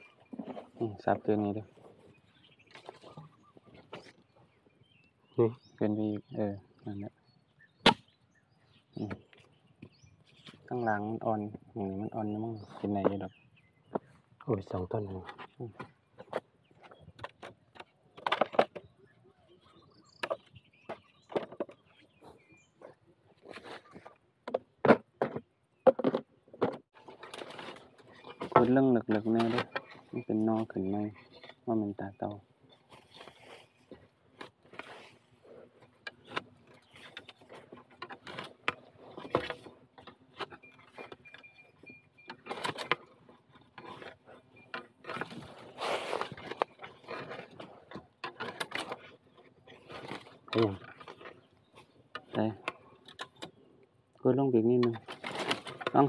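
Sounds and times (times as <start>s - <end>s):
dry bamboo and leaves crackling: 0.0s - 4.7s, 26.9s - 56.0s
blade chopping bamboo: 7.8s - 8.1s
rustling bursts: 45.1s - 47.9s.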